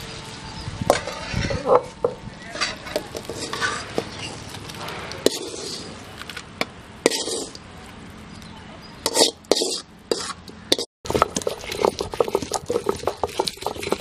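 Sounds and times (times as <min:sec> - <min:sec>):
steel spoon scraping steel pan: 0:02.6 - 0:06.0, 0:07.0 - 0:07.6, 0:09.0 - 0:14.0.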